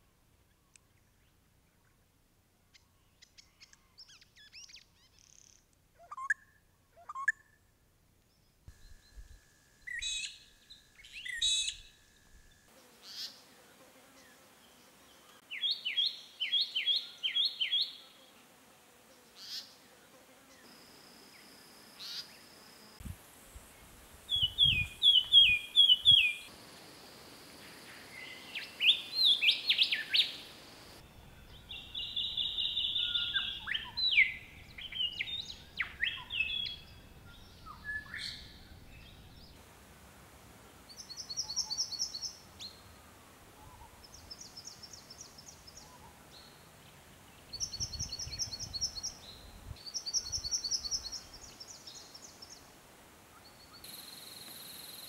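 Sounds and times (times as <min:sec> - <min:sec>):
birds chirping and whistling: 0:24.3 - 0:26.5.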